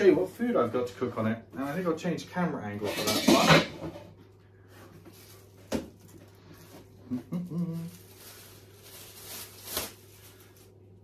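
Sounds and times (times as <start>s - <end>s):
low steady hum: 0.0s - 11.0s
short hummed vocal sound: 7.0s - 8.1s.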